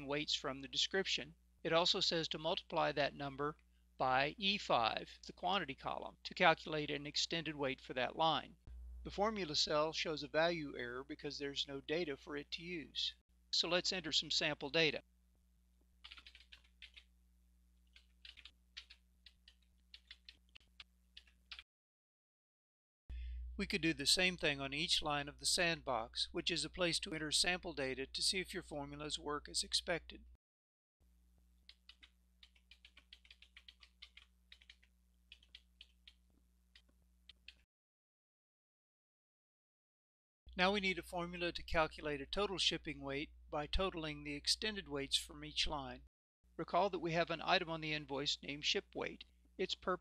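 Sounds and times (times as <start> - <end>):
faint low hum: 0.0 - 21.6, 23.1 - 30.4
keyboard typing clicks: 16.0 - 17.1, 17.9 - 21.6, 31.6 - 37.6.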